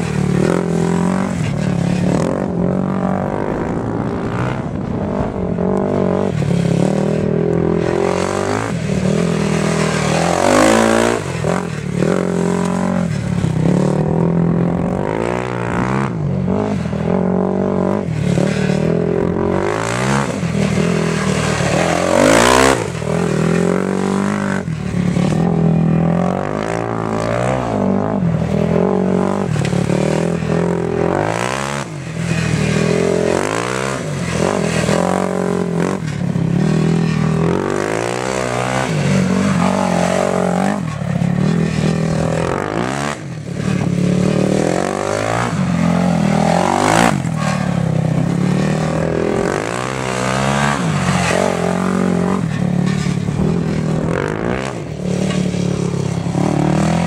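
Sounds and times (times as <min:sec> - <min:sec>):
quad engine revving: 0:00.0 - 0:57.0.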